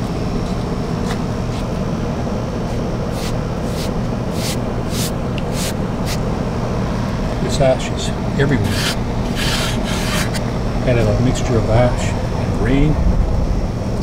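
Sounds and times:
steady low rumble: 0.0s - 14.0s
hand rubbing a chair arm: 3.1s - 6.2s, 8.6s - 10.4s.

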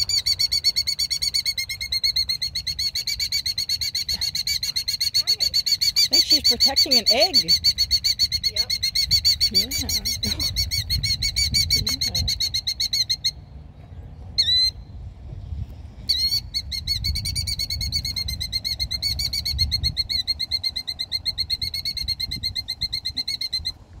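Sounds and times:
killdeer alarm trill: 0.0s - 13.4s.

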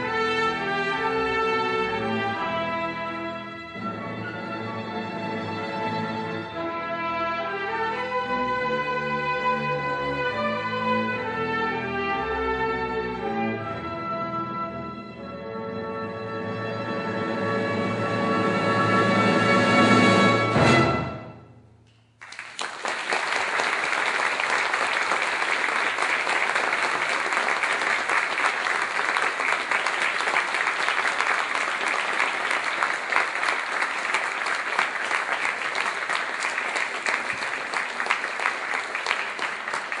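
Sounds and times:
audience applauding: 22.2s - 40.0s.

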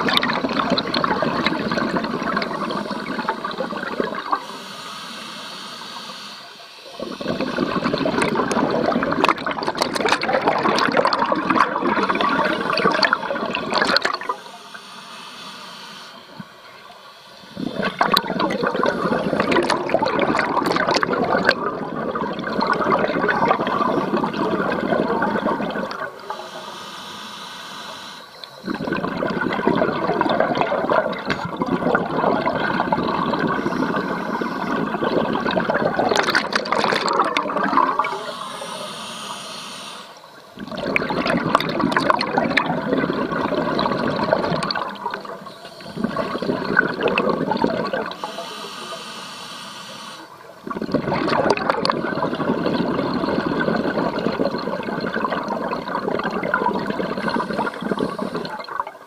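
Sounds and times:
underwater exhaled air bubbling: 0.0s - 59.0s
regulator inhalation hiss: 1.4s - 8.2s, 11.9s - 20.3s, 23.6s - 29.0s, 32.6s - 40.6s, 43.1s - 50.7s, 55.4s - 58.6s.

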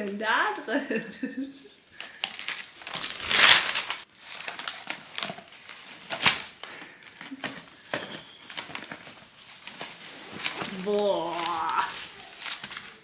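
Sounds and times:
paper crackles: 2.0s - 7.1s, 8.5s - 13.0s
wrapping paper ripping: 2.2s - 6.7s, 8.6s - 13.0s.

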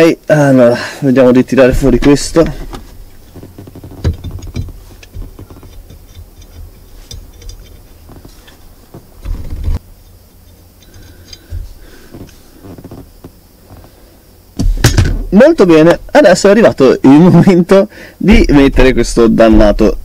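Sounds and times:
hand tools and metal parts clicking: 2.4s - 13.0s.

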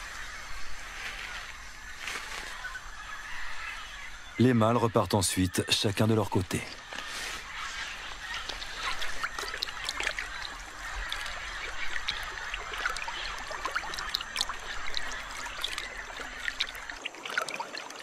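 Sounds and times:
water trickling and splashing: 5.2s - 18.0s.

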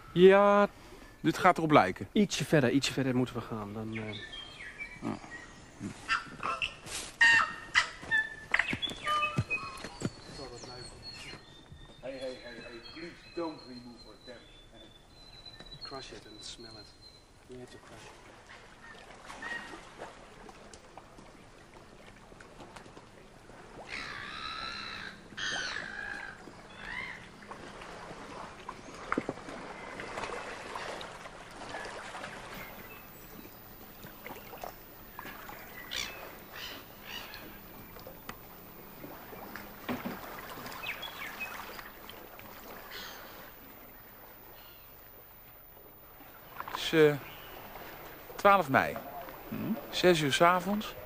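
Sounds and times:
birds chirping: 0.0s - 17.9s, 23.9s - 30.2s, 31.6s - 51.0s
faint outdoor background: 0.0s - 51.0s
birds warbling: 2.8s - 17.4s, 23.8s - 30.2s, 31.6s - 51.0s.

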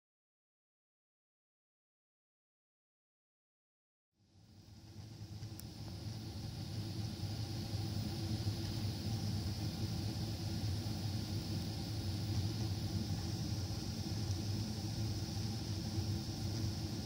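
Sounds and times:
airflow hiss: 4.2s - 17.0s
jet engine drone: 4.2s - 17.0s.

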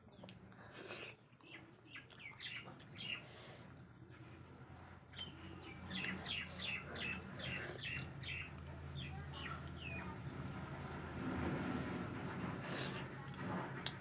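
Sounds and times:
bird chirping: 1.4s - 3.4s, 5.1s - 10.2s.

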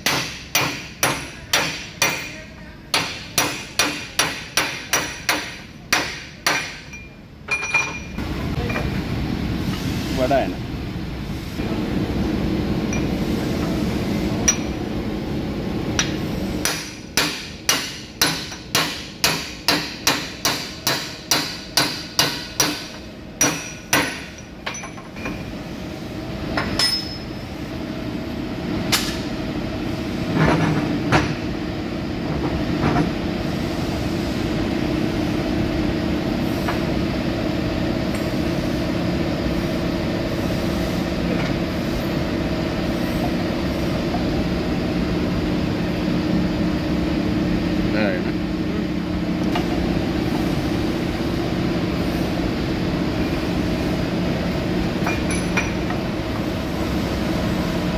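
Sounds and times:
hammer striking steel: 0.0s - 8.1s, 16.0s - 25.0s
steady machine hum: 0.0s - 57.9s.

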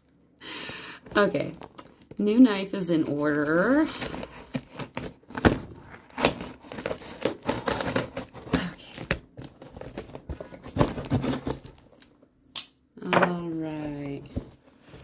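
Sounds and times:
cardboard flaps crinkling: 3.5s - 12.1s
tape tearing: 4.0s - 12.1s.

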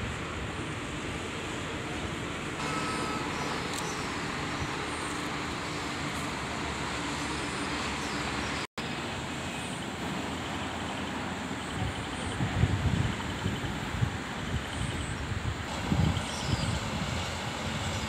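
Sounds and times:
distant highway traffic: 0.0s - 18.0s
wind buffeting microphone: 11.7s - 18.0s.

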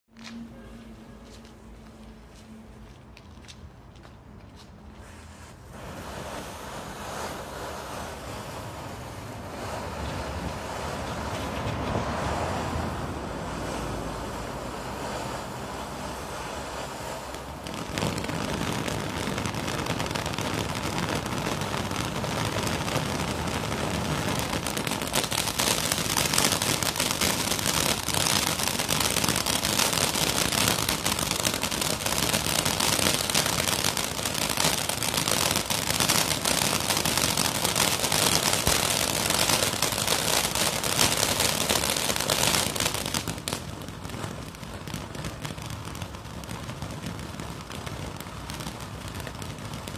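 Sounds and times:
fountain firework hissing: 4.9s - 49.9s
crackling bursting stars: 5.0s - 49.9s.

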